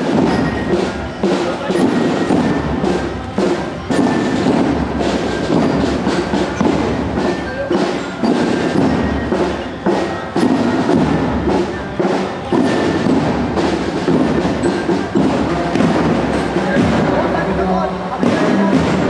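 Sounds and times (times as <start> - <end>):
faint bell-like tune: 0.0 - 3.2
marching drum band: 0.0 - 19.0.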